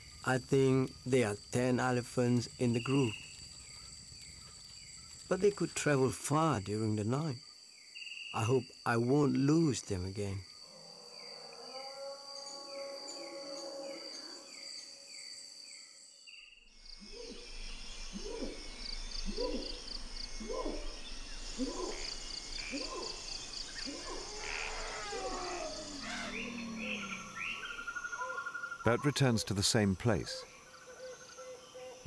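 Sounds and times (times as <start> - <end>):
cicadas pulsing: 0.0 - 32.0
high insect song: 0.0 - 32.0
rising hooting calls: 17.0 - 28.8.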